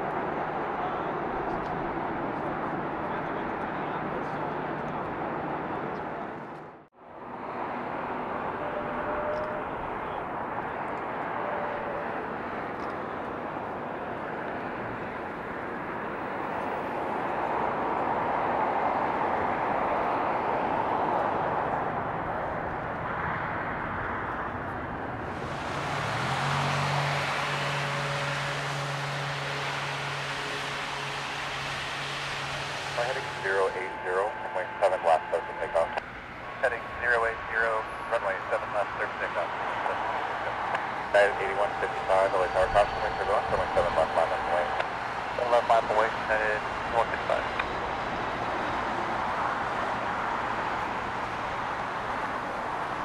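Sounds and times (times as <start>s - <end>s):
jet engine roar: 7.4s - 53.0s
low steady hum: 27.7s - 48.8s.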